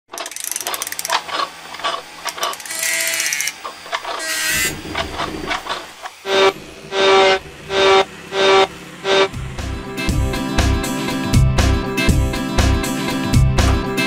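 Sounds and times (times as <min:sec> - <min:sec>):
mechanical clicks and clanks: 0:00.1 - 0:06.2
short ratcheting whirs: 0:00.1 - 0:09.4.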